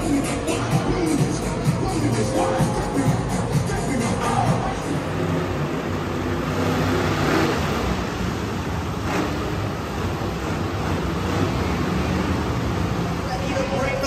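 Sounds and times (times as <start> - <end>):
truck engine running: 0.0 - 14.0.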